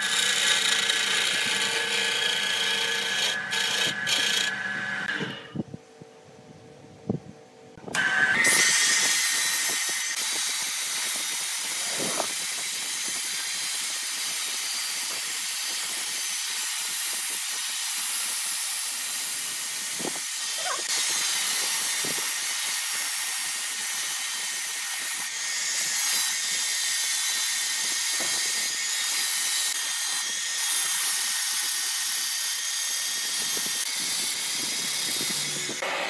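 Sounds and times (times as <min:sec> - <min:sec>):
angle grinder whine: 0:00.0 - 0:05.7, 0:07.8 - 0:15.2, 0:33.0 - 0:36.0
sanding hiss on wood: 0:09.0 - 0:36.0.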